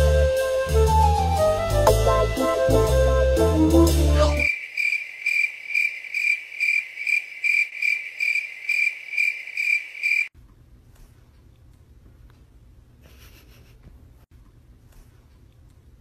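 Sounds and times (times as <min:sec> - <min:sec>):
insect chirping: 0:04.4 - 0:10.3.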